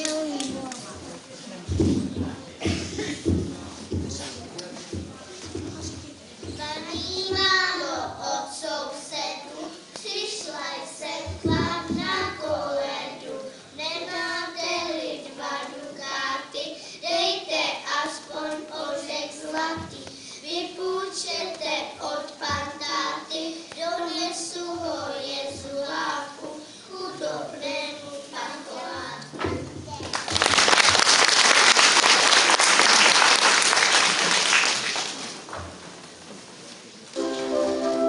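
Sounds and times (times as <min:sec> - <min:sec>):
children singing: 0:06.8 - 0:29.3.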